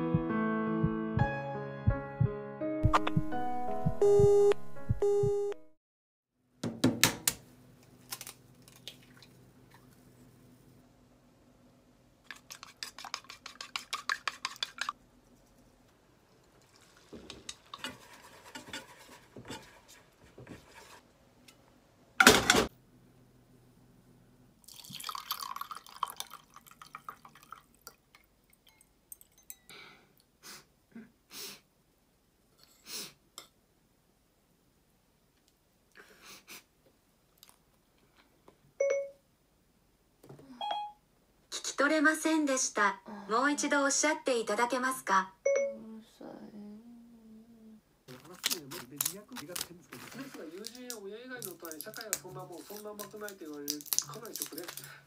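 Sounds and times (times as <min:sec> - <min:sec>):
egg pattering into frying pan: 0:16.3 - 0:19.6.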